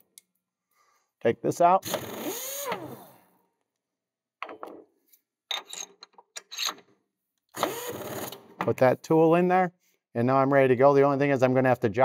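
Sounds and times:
metal tools clicking and rattling: 0:05.5 - 0:06.8.

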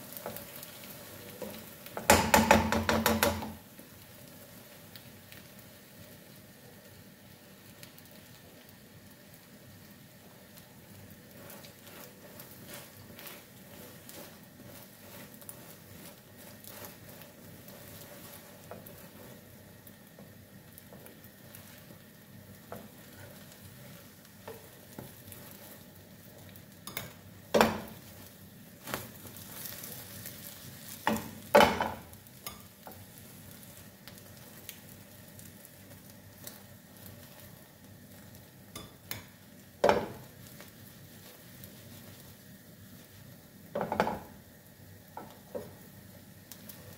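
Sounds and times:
omelette sizzling in a pan: 0:00.0 - 0:46.9
spatula knocking and scraping pan: 0:01.3 - 0:03.6, 0:11.3 - 0:22.0, 0:22.6 - 0:30.2, 0:30.8 - 0:33.0, 0:38.7 - 0:40.7, 0:43.6 - 0:44.4, 0:45.1 - 0:45.8.

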